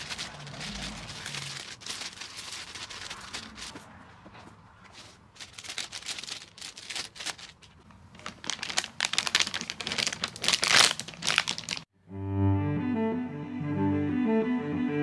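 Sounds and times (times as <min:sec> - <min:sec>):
plastic bag crinkling: 0:00.0 - 0:03.8, 0:05.0 - 0:11.9.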